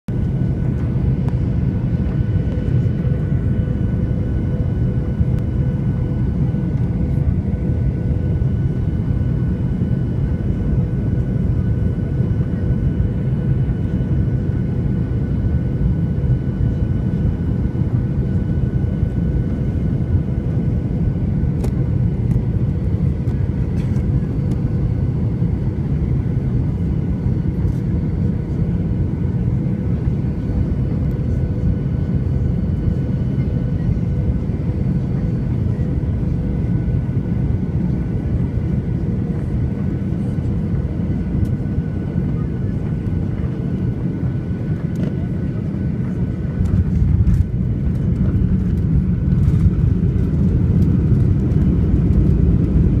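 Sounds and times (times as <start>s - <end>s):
jet engine and airflow rumble: 0.0s - 53.0s.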